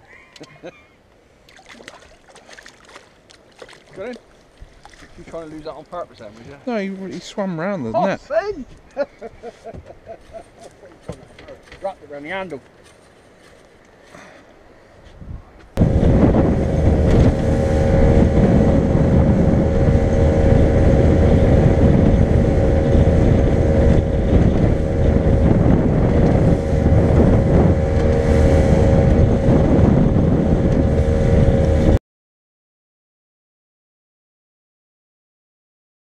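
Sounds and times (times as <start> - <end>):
wind noise on microphone: 15.0 - 32.0
outboard engine running: 15.8 - 32.0.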